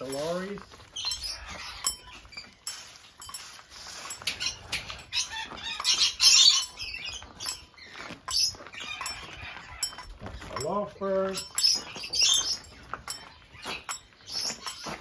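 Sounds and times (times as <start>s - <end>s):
footsteps on path: 0.0s - 15.0s
parrots screeching: 0.9s - 2.5s, 4.2s - 10.4s, 11.6s - 15.0s.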